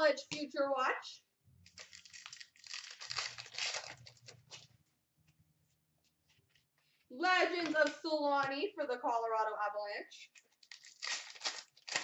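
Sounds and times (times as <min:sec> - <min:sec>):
plastic wrapper crinkling and tearing: 0:01.6 - 0:04.7, 0:10.4 - 0:12.0.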